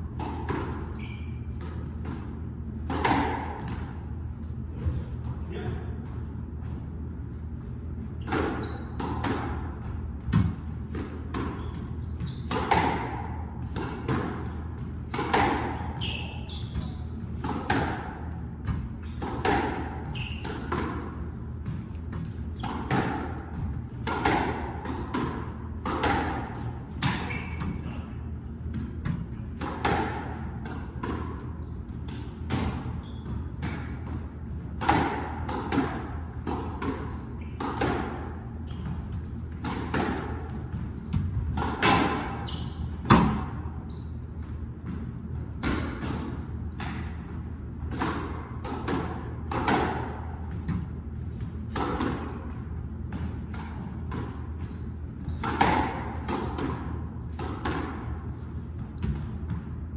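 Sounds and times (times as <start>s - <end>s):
squash ball hits: 0.0s - 5.0s, 8.1s - 43.8s, 44.8s - 54.6s, 55.2s - 59.9s.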